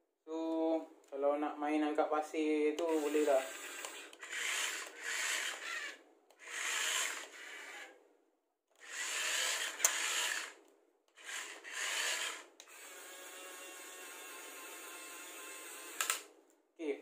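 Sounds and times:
toy motors and gears whirring: 2.8s - 8.0s, 8.8s - 16.3s
sharp click: 16.0s - 16.3s.

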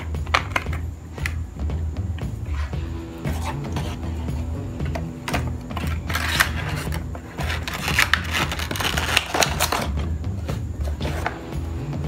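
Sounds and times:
plastic blister packaging crinkling: 5.3s - 10.0s.

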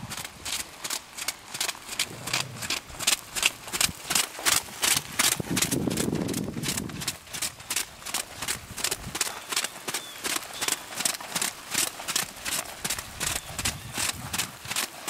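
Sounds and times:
hoofbeats trotting: 0.0s - 15.0s
low rumbling: 2.0s - 4.1s.

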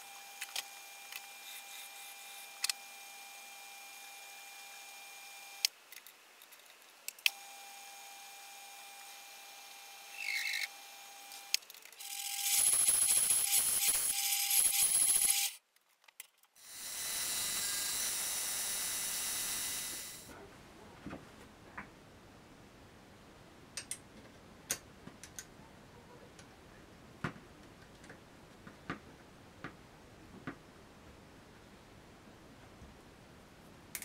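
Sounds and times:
bandsaw cutting aluminium: 11.4s - 15.6s, 16.6s - 20.3s.

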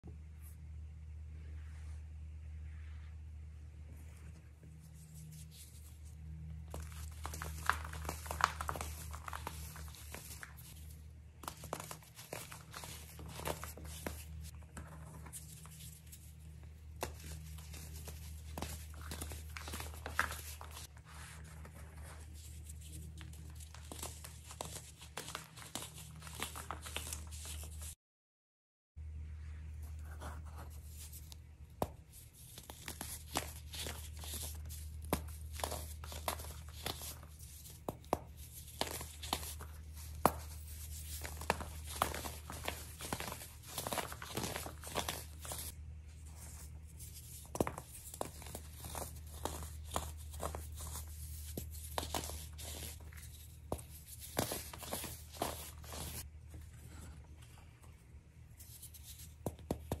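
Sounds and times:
steady low hum: 0.0s - 27.8s.

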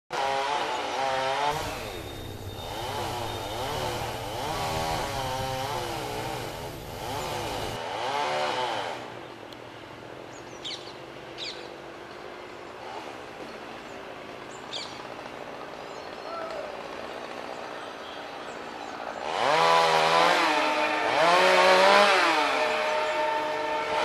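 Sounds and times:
chainsaw revving: 0.1s - 9.2s, 12.8s - 13.5s, 19.1s - 24.0s.

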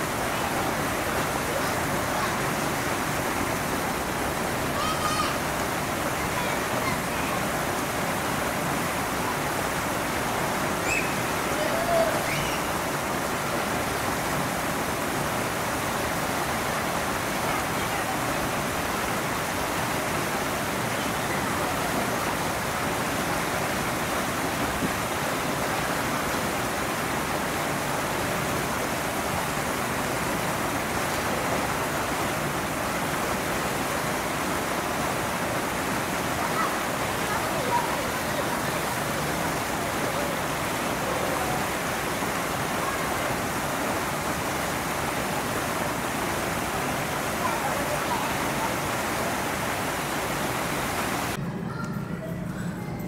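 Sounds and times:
faint indistinct voices: 46.5s - 50.2s, 51.3s - 53.0s.

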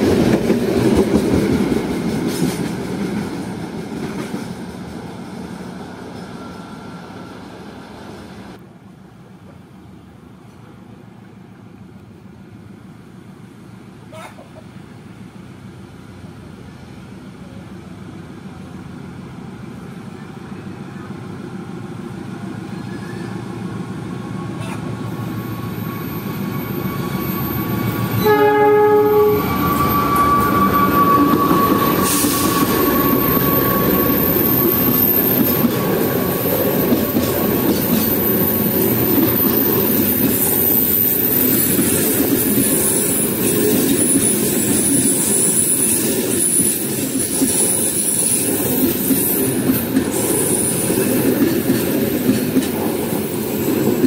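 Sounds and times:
train wheels rumbling on rails: 0.0s - 8.6s, 14.7s - 54.0s
high-pitched wheel squeal: 24.6s - 37.0s, 37.8s - 46.9s
train horn blast: 28.1s - 33.0s.

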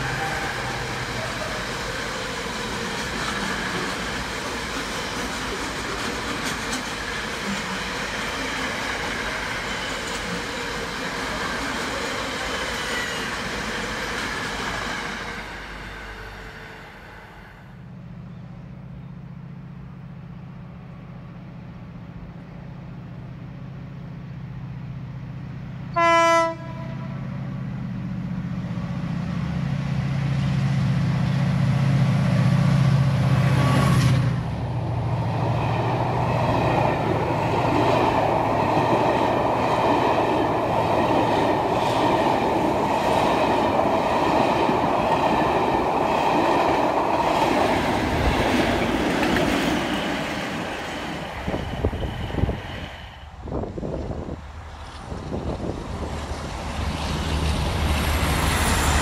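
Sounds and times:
train wheels rumbling and rattling: 0.0s - 16.2s, 27.2s - 59.0s
diesel locomotive engine passing: 0.0s - 59.0s
train horn blast: 25.9s - 27.3s.

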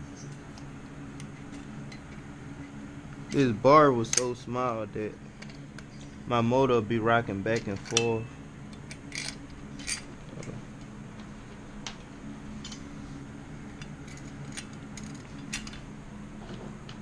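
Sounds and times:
low background hum: 0.0s - 17.0s
metallic clicks of parts handled: 3.3s - 4.4s, 7.5s - 10.1s.

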